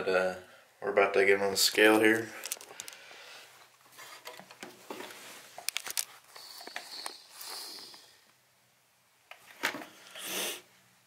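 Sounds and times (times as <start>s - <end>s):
soft rustle: 2.0s - 8.2s.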